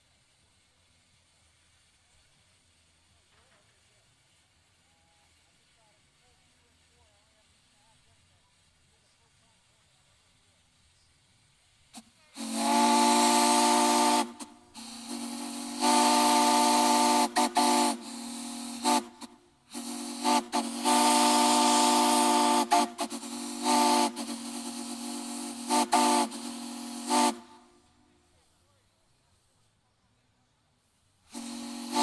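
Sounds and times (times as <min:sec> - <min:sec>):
steam hissing: 0:00.0 - 0:32.0
steam whistle blasts: 0:12.0 - 0:28.1, 0:31.3 - 0:32.0.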